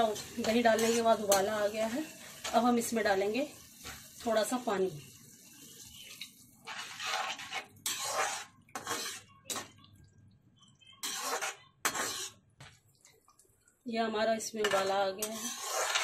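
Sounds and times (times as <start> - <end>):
spatula scraping steel pan: 0.0 - 1.5, 6.6 - 9.8, 11.0 - 12.4, 14.6 - 16.0
water poured into hot pan: 1.7 - 9.2.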